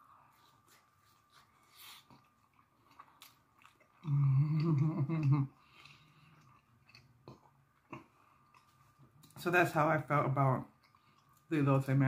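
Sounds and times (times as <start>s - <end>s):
close-up chewing: 0.6s - 9.4s, 10.6s - 11.5s
person humming mmm: 4.0s - 5.6s.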